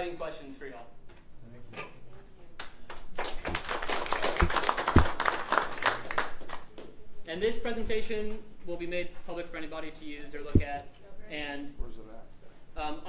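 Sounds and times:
audience clapping: 0:02.6 - 0:06.9
low thumps: 0:04.4 - 0:05.2, 0:10.4 - 0:10.9.

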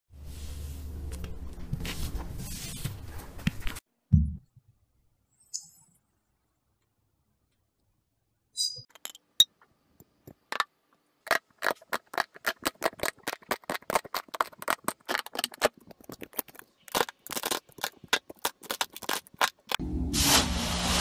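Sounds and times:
brittle crust cracking: 0:11.3 - 0:19.8.

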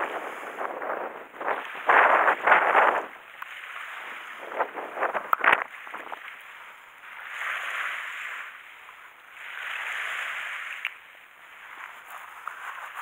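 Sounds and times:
sea waves washing on shore: 0:00.0 - 0:13.0.

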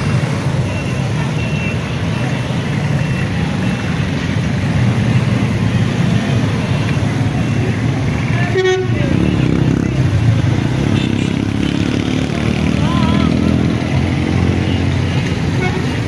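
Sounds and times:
motorcycle engines passing: 0:00.0 - 0:16.0
vehicle horn toot: 0:08.4 - 0:09.7, 0:15.5 - 0:16.0.

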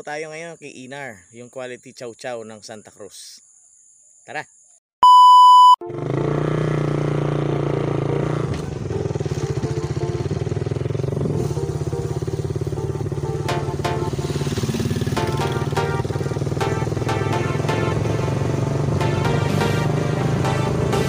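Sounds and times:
high test-tone beep: 0:05.0 - 0:05.9
motorcycle engine running: 0:05.8 - 0:21.0.

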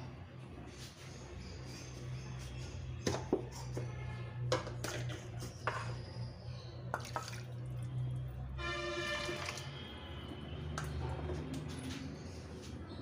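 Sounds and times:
water pouring into pot: 0:07.0 - 0:08.1, 0:08.9 - 0:09.8.

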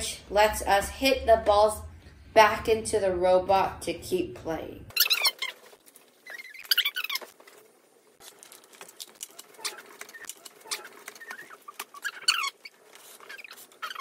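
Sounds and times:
short high squeaks: 0:04.9 - 0:07.4, 0:09.2 - 0:14.0
zip ties and wooden parts rattling: 0:05.0 - 0:14.0.

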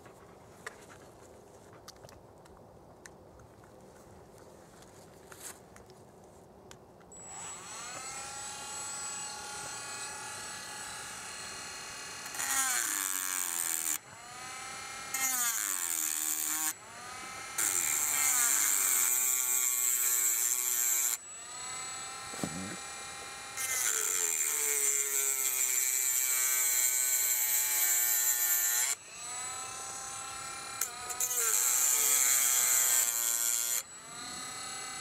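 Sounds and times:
rotary tool whine: 0:07.2 - 0:35.0.

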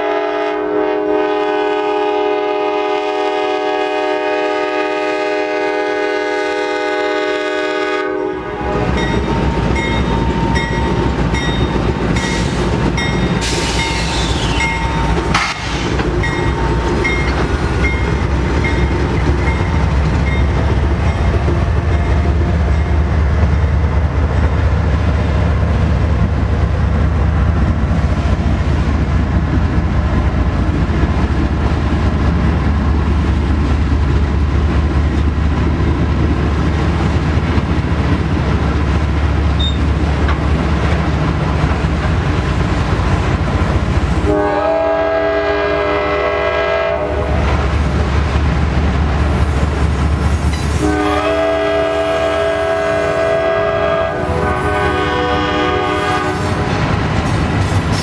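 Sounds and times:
train horn chord: 0:00.0 - 0:09.1, 0:44.2 - 0:47.4, 0:50.8 - 0:56.7
diesel locomotive engines: 0:00.0 - 0:58.0
train cars rumbling and clattering: 0:00.0 - 0:58.0
locomotive bell ringing: 0:08.9 - 0:12.4, 0:13.0 - 0:15.4, 0:16.2 - 0:23.0.

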